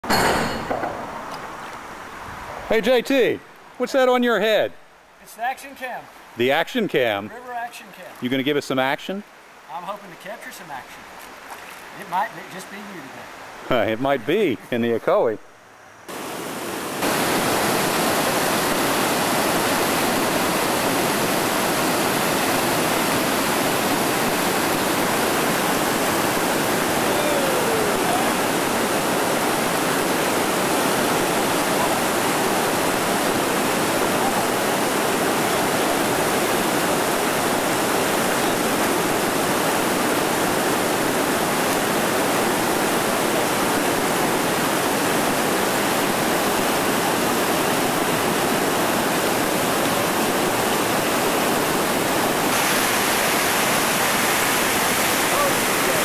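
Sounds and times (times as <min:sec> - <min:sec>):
water rushing over rocks: 0:16.1 - 0:56.0.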